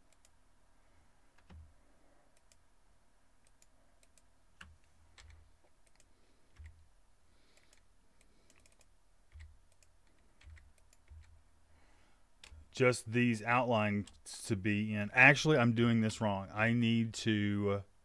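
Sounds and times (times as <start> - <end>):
mouse and keyboard clicks: 7.5 - 11.3.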